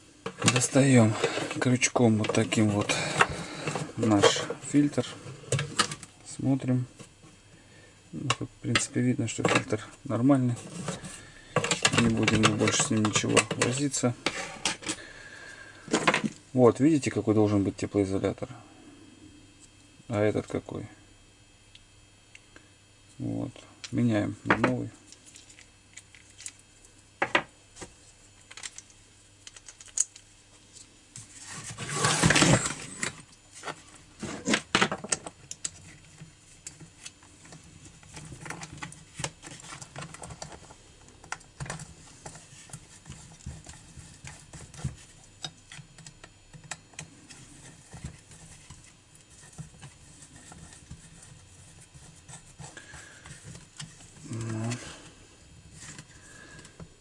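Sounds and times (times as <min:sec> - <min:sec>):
rustling scrape: 0:00.5 - 0:01.8, 0:10.4 - 0:11.2, 0:31.2 - 0:34.6.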